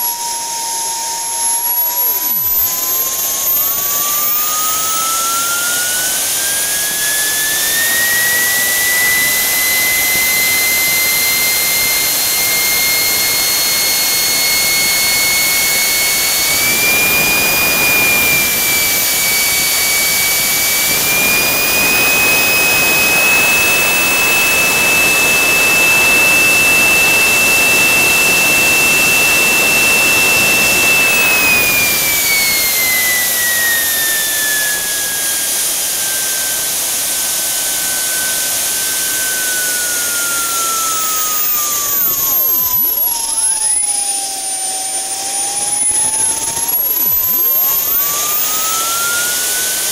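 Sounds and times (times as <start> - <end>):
jet turbine engine whine: 0.0 - 49.9.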